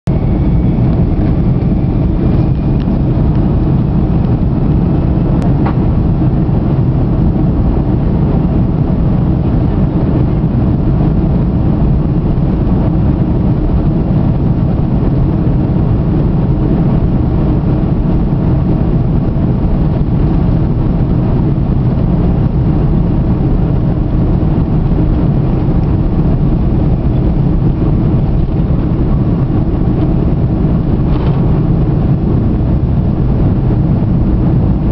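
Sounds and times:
jet engines from inside cabin: 0:00.1 - 0:34.9.

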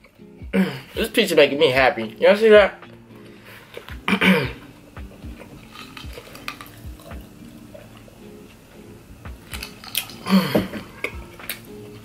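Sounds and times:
close chewing: 0:03.2 - 0:04.1, 0:05.0 - 0:08.2, 0:09.4 - 0:10.3, 0:10.9 - 0:12.0.

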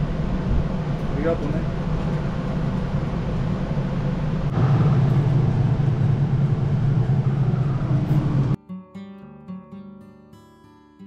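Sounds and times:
portable cooler humming: 0:00.0 - 0:08.6.

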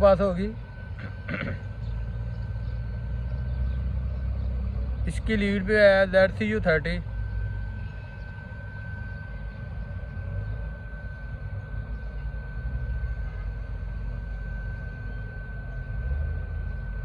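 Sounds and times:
distant diesel locomotive rumble: 0:00.0 - 0:17.0
faint high-pitched tone: 0:05.4 - 0:17.0.

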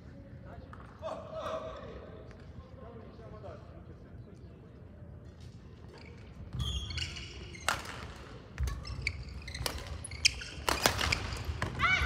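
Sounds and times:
shoes squeaking on court: 0:05.5 - 0:11.8
rackets hitting shuttlecock: 0:07.5 - 0:11.8.

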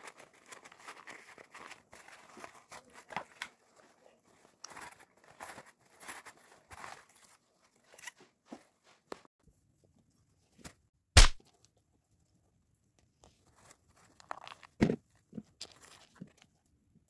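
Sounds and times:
tissue paper rustling: 0:00.0 - 0:09.0.

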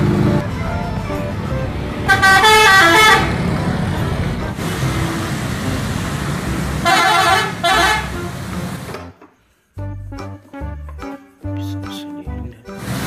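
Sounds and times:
bus engines rumbling: 0:00.0 - 0:09.2
road traffic: 0:00.0 - 0:09.3, 0:12.8 - 0:13.0
multi-tone bus air horns: 0:02.0 - 0:03.9, 0:04.5 - 0:08.9.

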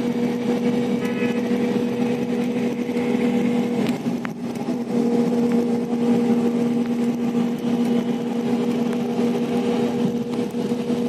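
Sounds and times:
bus engine and road noise: 0:00.0 - 0:11.0
constant low hum: 0:00.0 - 0:11.0.

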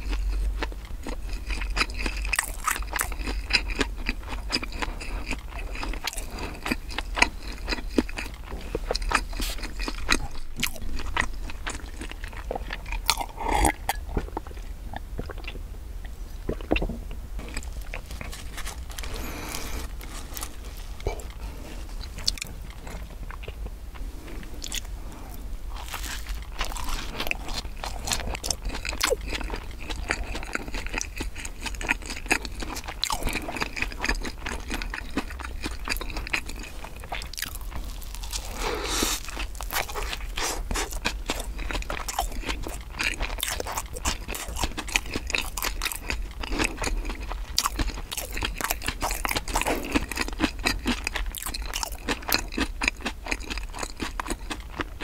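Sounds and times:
crunchy bites: 0:00.0 - 0:14.6, 0:16.5 - 0:55.0
chewing bread: 0:00.0 - 0:55.0
swallowing gulps: 0:12.4 - 0:18.2.

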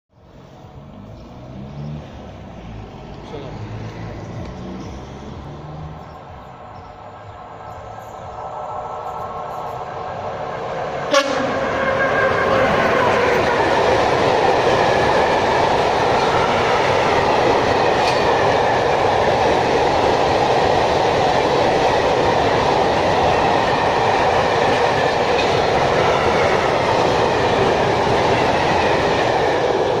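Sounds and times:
train wagons rumbling and rattling: 0:02.0 - 0:30.0.

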